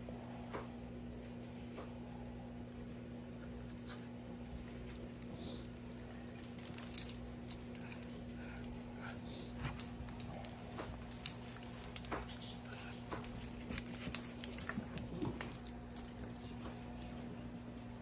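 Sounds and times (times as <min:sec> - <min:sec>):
steady low hum: 0:00.0 - 0:18.0
light clicks and jingles: 0:04.7 - 0:18.0.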